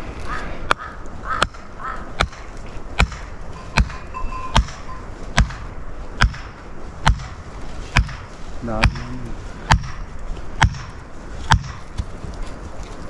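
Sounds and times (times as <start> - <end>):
dull heavy blows: 0.6 - 12.2.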